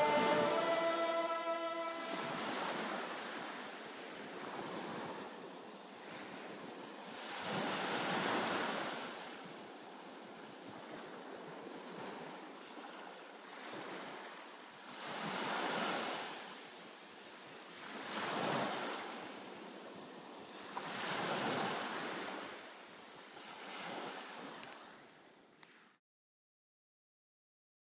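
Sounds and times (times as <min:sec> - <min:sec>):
wind noise on microphone: 0:00.0 - 0:03.0
waves washing in and receding: 0:00.0 - 0:25.2.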